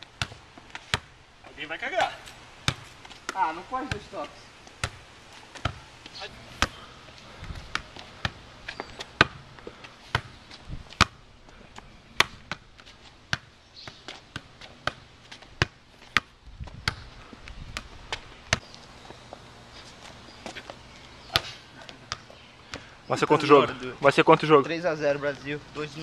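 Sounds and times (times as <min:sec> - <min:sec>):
soccer ball taps: 0:02.7 - 0:05.0.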